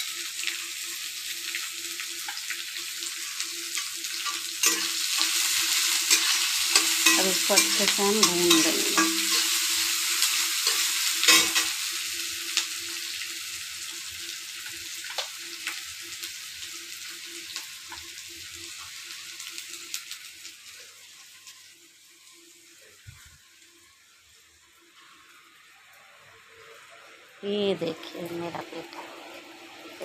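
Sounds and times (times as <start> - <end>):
onions sizzling in hot oil: 0.0 - 30.0
spatula scraping a wok: 3.7 - 11.9.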